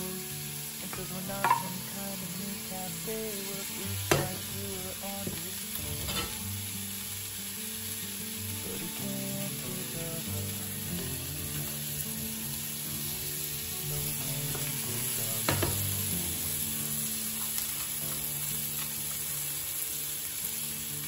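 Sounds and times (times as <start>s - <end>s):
vegetables sizzling in frying pan: 0.0s - 21.0s
spatula knocking against pan: 1.4s - 1.8s.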